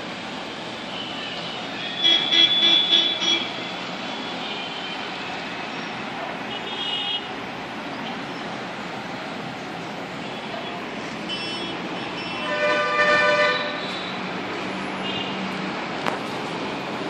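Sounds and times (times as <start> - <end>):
street traffic: 0.0 - 17.0
vehicle horn beeping: 1.0 - 5.0, 11.3 - 14.2.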